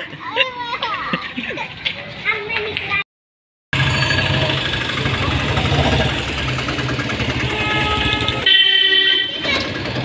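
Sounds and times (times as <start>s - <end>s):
small engine running: 3.8s - 8.5s.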